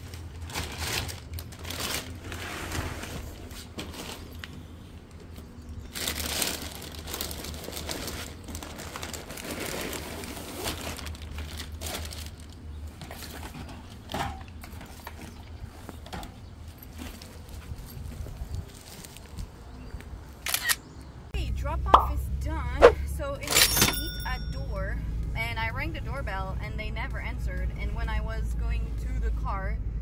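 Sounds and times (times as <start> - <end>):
plastic bags rustling: 0.0 - 4.7, 5.5 - 14.2.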